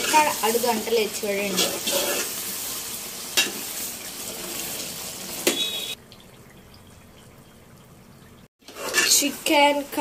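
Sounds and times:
curry sizzling and bubbling in pot: 0.0s - 10.0s.

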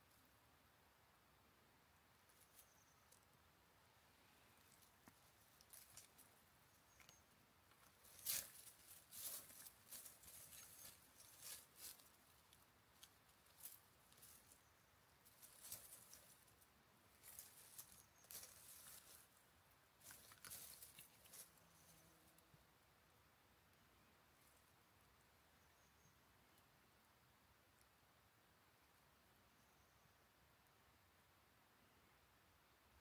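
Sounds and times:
cat rustling dry leaves: 4.6s - 6.4s, 7.9s - 14.6s, 15.2s - 19.4s, 20.0s - 22.0s.

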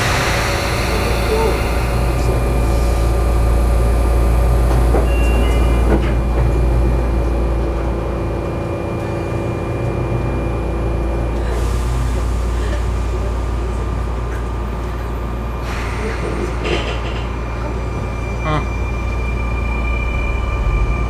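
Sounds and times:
train equipment hum: 0.0s - 21.0s
train doors sliding closed: 4.5s - 7.3s, 15.6s - 18.2s.

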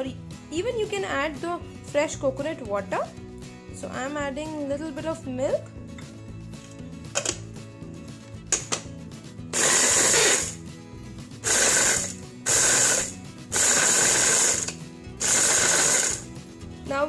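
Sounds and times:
electric food chopper: 9.6s - 10.6s, 11.4s - 16.3s.

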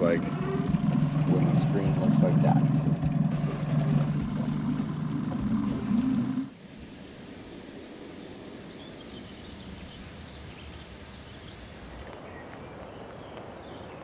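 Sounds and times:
steady background hiss: 6.5s - 14.0s.

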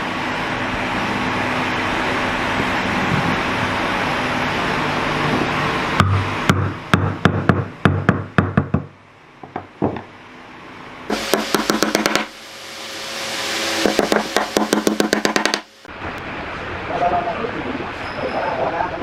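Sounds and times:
hammer knocking on logs: 6.0s - 10.1s, 11.1s - 12.3s, 13.9s - 15.7s
hammer tapping nail: 11.1s - 12.3s, 13.8s - 15.7s.

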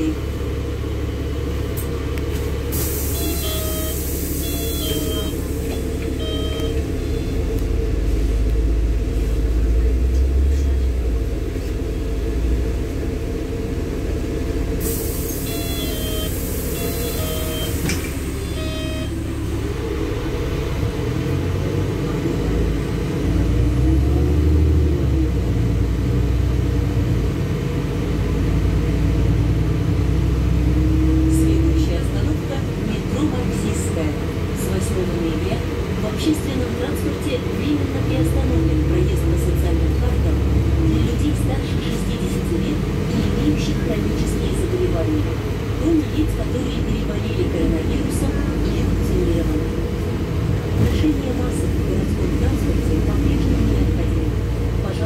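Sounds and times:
bus engine and road rumble: 0.0s - 55.0s
short repeated beeps: 3.2s - 5.4s, 6.0s - 7.5s, 15.5s - 19.4s.

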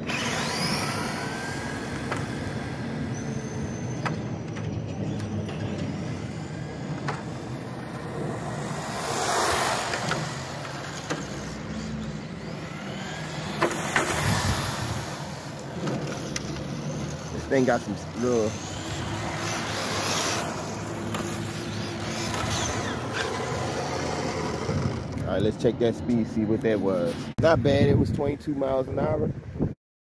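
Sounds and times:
electric motor whining: 0.0s - 4.6s, 5.2s - 25.3s
tyres on rough asphalt: 0.0s - 25.5s.

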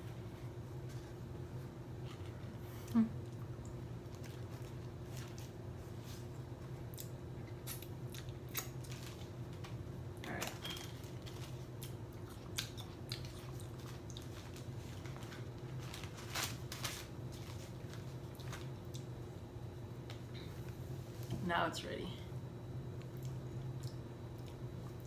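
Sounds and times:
steady low hum: 0.0s - 25.0s
paper wrapper crinkling: 10.3s - 11.7s, 13.3s - 18.7s.

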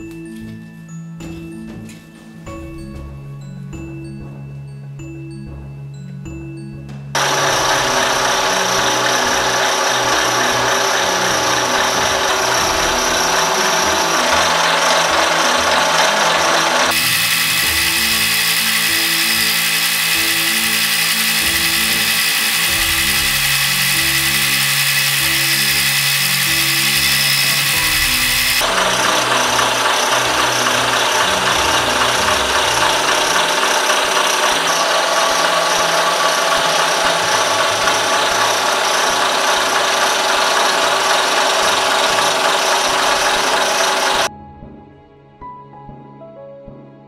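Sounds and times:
soft background music: 0.0s - 16.5s, 44.3s - 47.0s
milling machine cutting metal: 7.2s - 44.3s.

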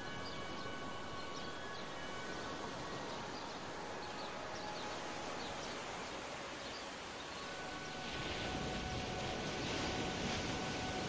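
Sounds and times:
ocean surf washing: 5.8s - 11.0s.

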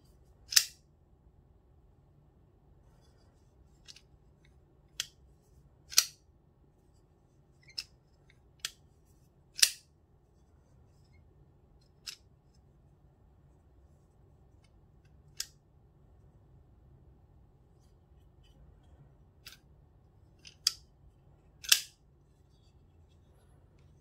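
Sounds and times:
folding knife clicking open and shut: 0.5s - 0.8s, 5.9s - 6.2s, 9.6s - 9.8s, 21.6s - 22.0s.

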